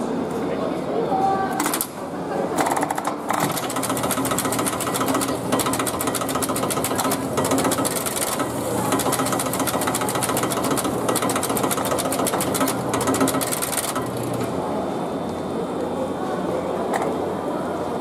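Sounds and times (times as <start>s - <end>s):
contactors clicking rapidly: 2.9s - 14.4s.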